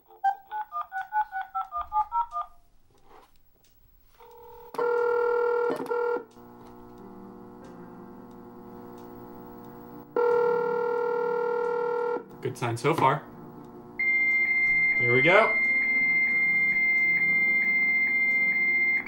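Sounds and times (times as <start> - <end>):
faint steady phone tone: 4.1 - 6.9, 8.0 - 12.2, 13.9 - 19.0
telephone ringback tone: 4.2 - 6.3, 10.2 - 12.2, 14.0 - 19.0.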